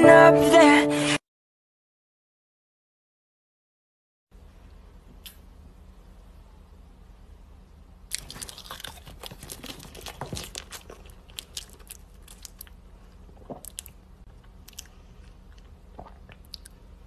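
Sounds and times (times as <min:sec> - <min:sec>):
chewing with wet mouth clicks: 0:08.1 - 0:12.8, 0:13.4 - 0:16.8.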